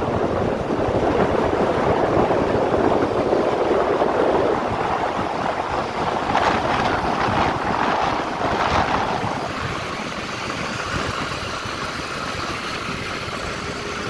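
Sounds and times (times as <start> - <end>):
wind rushing over microphone: 0.0 - 14.0
motorcycle engine running: 5.8 - 14.0.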